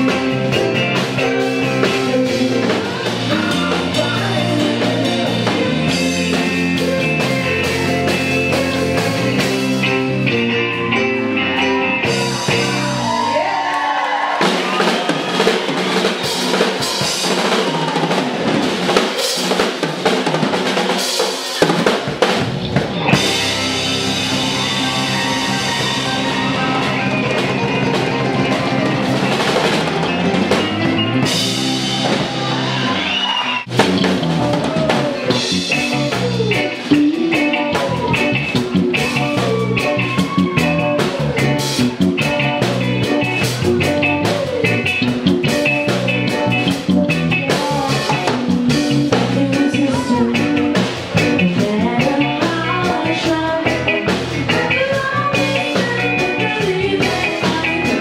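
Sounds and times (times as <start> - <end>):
live band music: 0.0 - 58.0
woman singing: 1.3 - 6.9, 47.5 - 50.8, 51.5 - 58.0.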